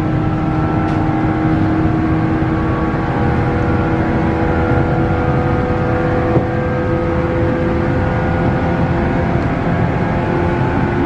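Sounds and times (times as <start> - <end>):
train traction motor whine: 0.0 - 11.0
wheels rumbling on rail: 0.0 - 11.0.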